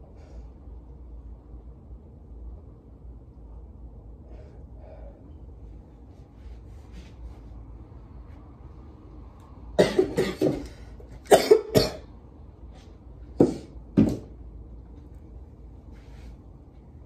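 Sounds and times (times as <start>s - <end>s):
person coughing: 9.8s - 10.7s, 11.3s - 12.1s.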